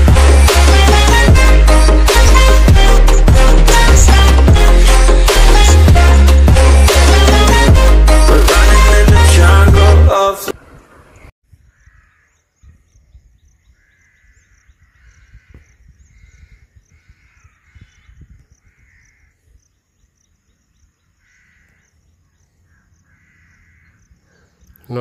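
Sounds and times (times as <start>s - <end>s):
faint bird calls: 10.6s - 25.0s.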